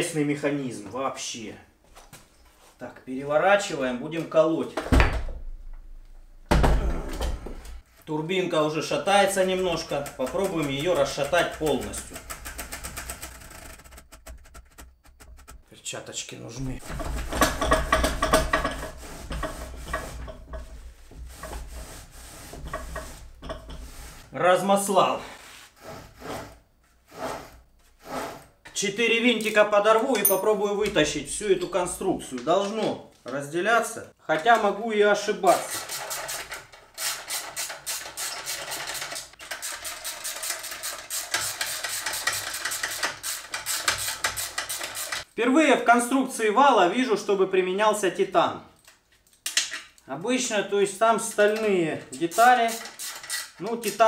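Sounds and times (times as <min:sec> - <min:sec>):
metal parts rattling and scraping: 0:09.1 - 0:15.7, 0:16.6 - 0:24.2, 0:35.5 - 0:45.3
ratchet clicking rapidly: 0:37.0 - 0:45.3.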